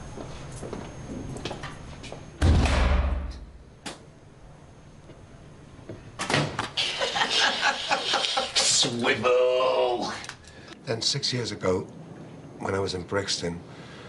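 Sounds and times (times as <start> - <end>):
cell door slamming shut: 2.4 - 3.5
men laughing: 6.8 - 9.2.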